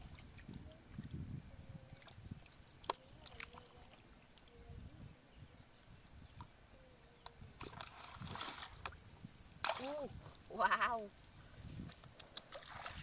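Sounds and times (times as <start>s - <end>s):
hands splashing in muddy water: 12.2s - 13.0s.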